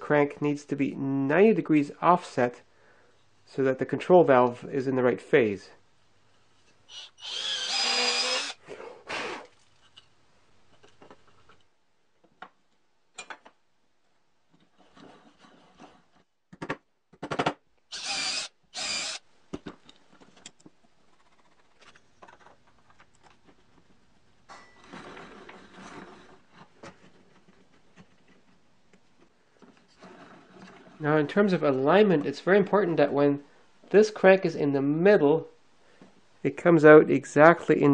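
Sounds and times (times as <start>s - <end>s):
screwdriver driving screws into wood: 6.9s - 8.6s, 17.9s - 19.2s
power tool bursts: 6.9s - 9.4s, 17.9s - 19.2s.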